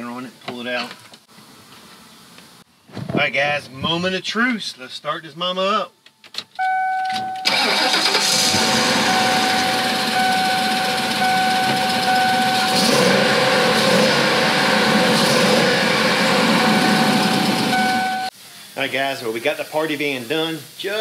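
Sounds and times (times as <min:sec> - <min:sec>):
electronic warning tone: 0:06.6 - 0:18.3
van engine running: 0:07.5 - 0:18.3.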